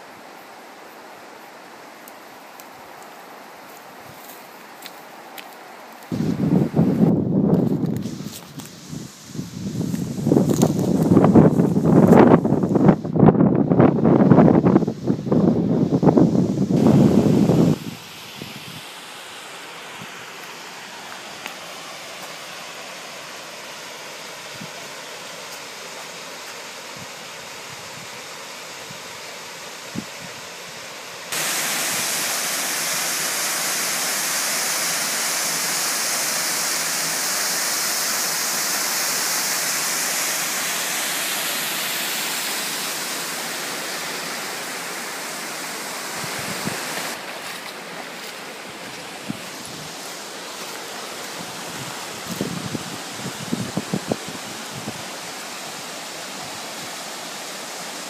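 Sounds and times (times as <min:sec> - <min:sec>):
water rushing over stream bed: 0:00.0 - 0:58.0
waterfall roaring: 0:14.8 - 0:58.0.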